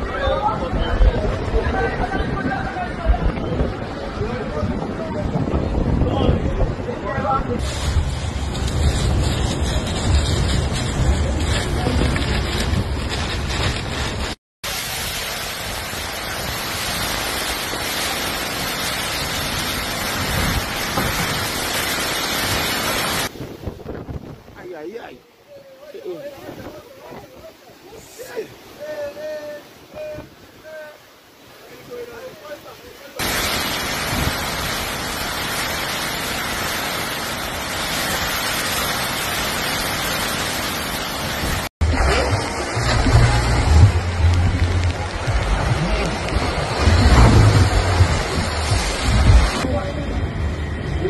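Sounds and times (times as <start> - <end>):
wind buffeting the microphone: 0.0 - 14.4, 22.3 - 25.1, 25.9 - 30.8, 41.2 - 51.0
driving rain: 0.0 - 51.0
strong wind: 0.0 - 51.0
deep low rumble: 7.6 - 14.4, 41.8 - 51.0.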